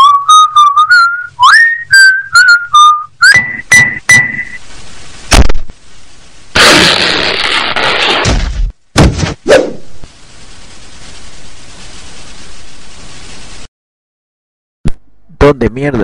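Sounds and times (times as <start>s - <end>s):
short whistled notes: 0.0s - 4.6s
sharp cartoon hits: 1.4s - 4.6s, 5.3s - 5.7s, 6.5s - 10.0s
loud noisy crash: 5.3s - 5.7s, 6.5s - 9.4s.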